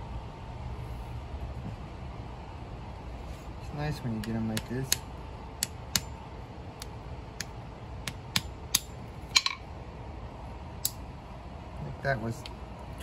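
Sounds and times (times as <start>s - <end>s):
hammer tapping seed on concrete: 4.1s - 6.2s, 6.8s - 9.6s.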